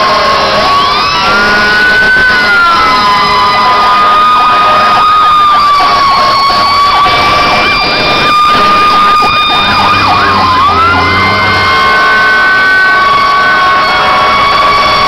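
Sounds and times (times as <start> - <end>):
steady high siren tone: 0.0 - 15.0
fast yelping siren: 1.9 - 15.0.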